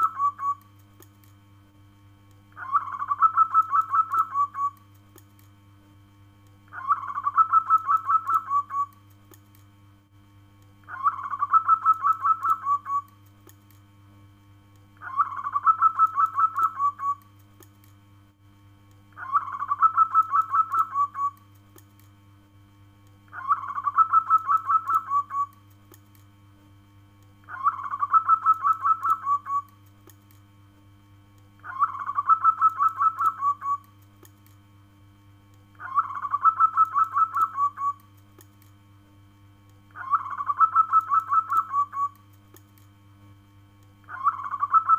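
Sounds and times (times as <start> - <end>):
dove cooing: 0.0 - 0.6, 2.6 - 4.8, 6.8 - 8.9, 10.9 - 13.1, 15.1 - 17.2, 19.2 - 21.4, 23.4 - 25.5, 27.5 - 29.7, 31.6 - 33.8, 35.8 - 38.0, 40.0 - 42.2, 44.1 - 44.9.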